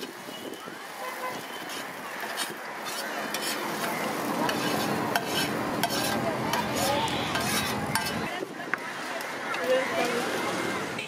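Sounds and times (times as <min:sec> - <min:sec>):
hot oil sizzling: 0:00.0 - 0:08.3
metal spatula scraping griddle: 0:01.1 - 0:08.3.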